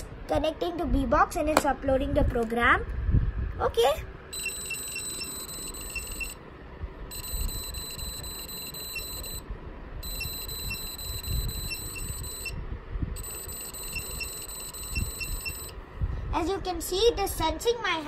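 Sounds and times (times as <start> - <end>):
high-pitched electronic beeper tone: 4.4 - 6.4, 7.1 - 9.4, 10.0 - 12.5, 13.2 - 15.7.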